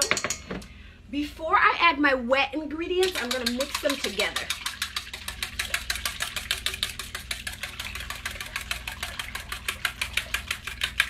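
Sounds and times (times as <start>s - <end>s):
wire whisk beating in metal bowl: 3.0s - 11.0s.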